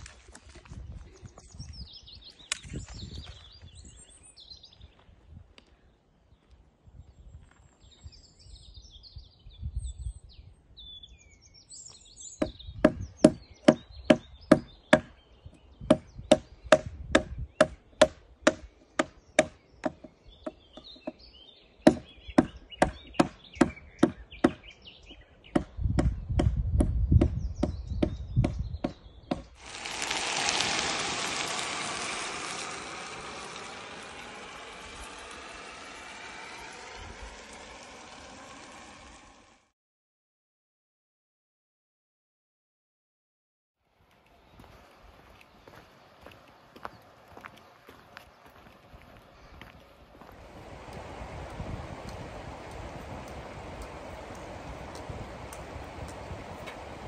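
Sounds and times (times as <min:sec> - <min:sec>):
birds chirping: 0:00.7 - 0:39.4, 0:44.1 - 0:57.0
chopping wood strikes: 0:12.4 - 0:15.1, 0:15.9 - 0:20.1, 0:21.9 - 0:24.6
steady rushing hiss: 0:29.6 - 0:39.7, 0:50.0 - 0:57.0.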